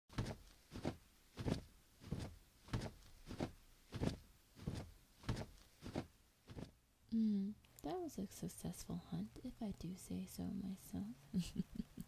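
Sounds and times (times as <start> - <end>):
footsteps walking: 0.2 - 6.8.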